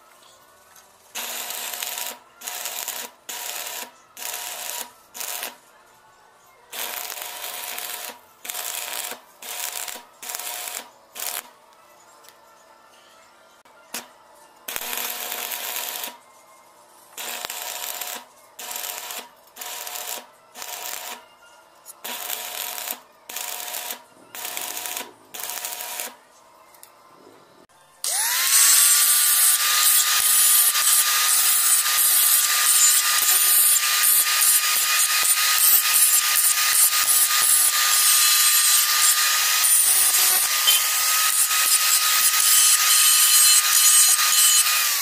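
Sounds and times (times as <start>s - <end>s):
welding arc crackle: 1.2s - 5.6s, 6.8s - 11.5s, 14.7s - 16.2s, 17.2s - 21.2s, 22.0s - 26.2s, 28.1s - 45.0s
angle grinder whining: 28.0s - 45.0s.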